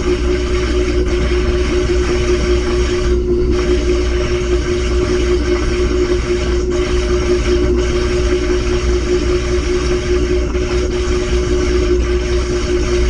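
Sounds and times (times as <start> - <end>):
washing machine humming: 0.0 - 13.0.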